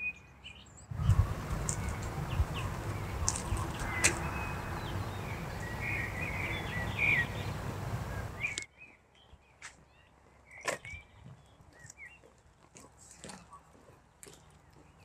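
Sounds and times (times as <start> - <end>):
small birds chirping: 0.0 - 15.0
steady low rumbling: 0.9 - 8.5.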